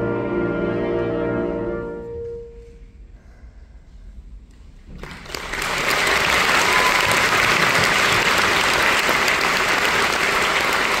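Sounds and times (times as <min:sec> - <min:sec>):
audience applauding: 0:05.0 - 0:11.0.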